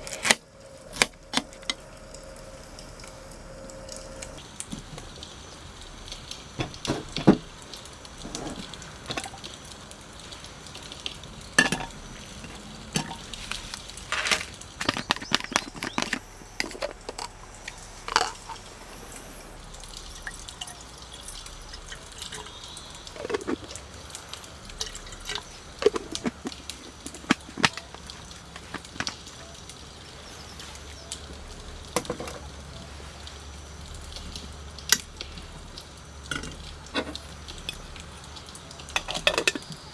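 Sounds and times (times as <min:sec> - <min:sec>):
water pouring into kettle: 0:00.0 - 0:39.9
metal cookware clinking: 0:11.6 - 0:13.3.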